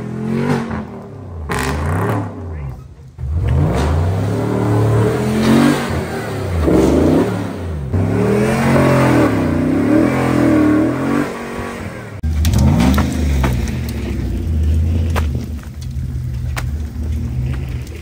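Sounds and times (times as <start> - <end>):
another engine revving: 0.0 - 2.5, 3.2 - 15.2
off-road engine revving: 0.0 - 18.0.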